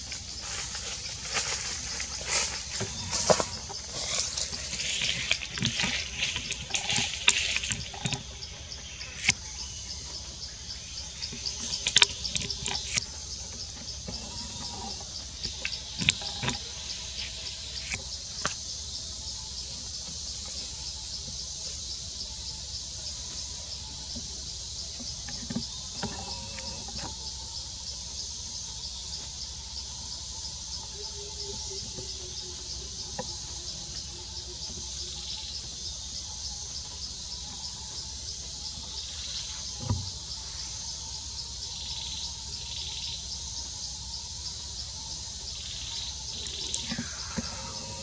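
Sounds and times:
high-pitched insect chorus: 0:00.0 - 0:48.0.

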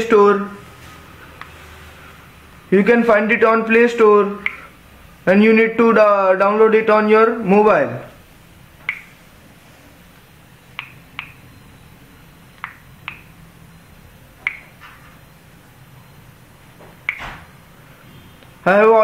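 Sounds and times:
faint low hum: 0:00.0 - 0:19.0
smartphone keyboard tap clicks: 0:14.4 - 0:14.6.

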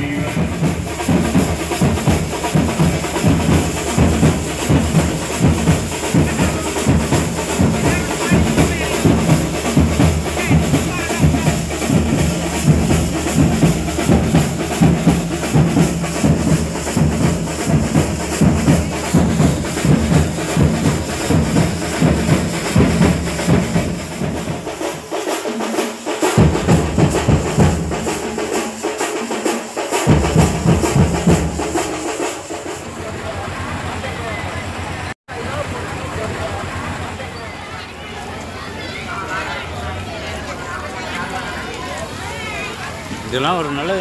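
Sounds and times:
loud music with pounding drums: 0:00.0 - 0:32.8.

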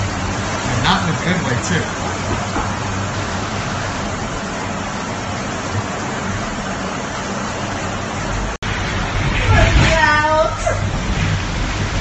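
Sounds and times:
heavy rain drumming on metal box: 0:00.0 - 0:12.0
road and engine rumble: 0:00.0 - 0:12.0.

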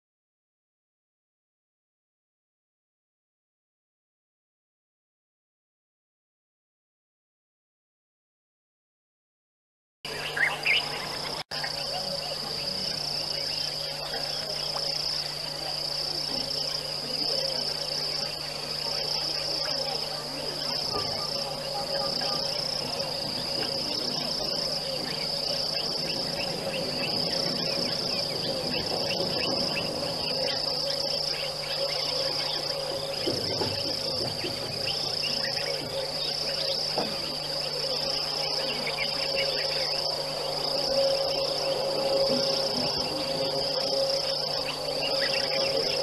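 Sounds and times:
faint low hum: 0:10.1 - 0:46.0
insects trilling: 0:10.1 - 0:46.0.

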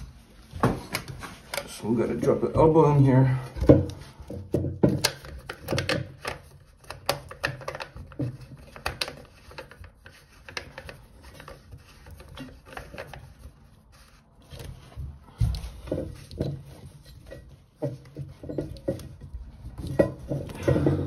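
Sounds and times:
plastic clicking and knocking: 0:03.6 - 0:13.4, 0:17.7 - 0:21.0
plastic rubbing against ceramic: 0:03.7 - 0:21.0.

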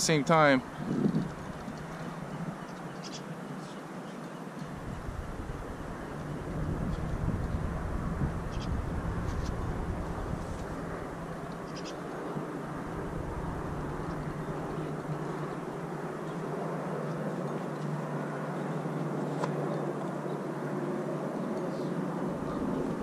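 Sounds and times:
low hum: 0:04.7 - 0:23.0.

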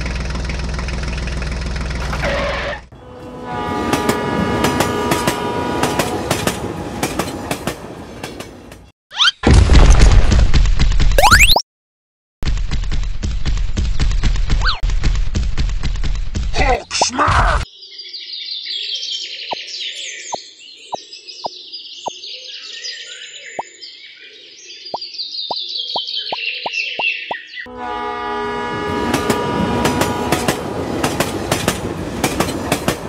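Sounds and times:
engine with clattering knock: 0:00.0 - 0:02.5, 0:12.4 - 0:16.6
birds chirping: 0:17.7 - 0:27.7.

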